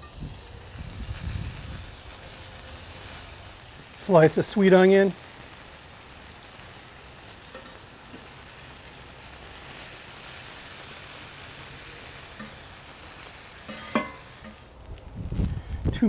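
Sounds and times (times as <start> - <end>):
meat and onion sizzling on griddle: 0.0 - 16.0
metal spatula scraping and tapping: 7.5 - 8.3, 12.4 - 12.6, 13.6 - 14.6.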